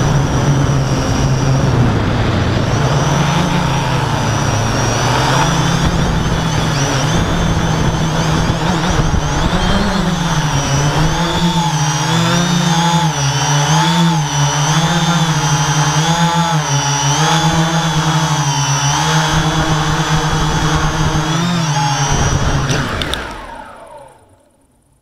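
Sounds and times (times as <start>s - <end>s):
electric motors buzzing hum: 0.0s - 24.5s.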